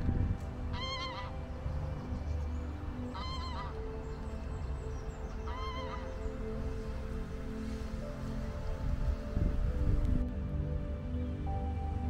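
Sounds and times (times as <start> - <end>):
water bird calling: 0.7 - 7.7.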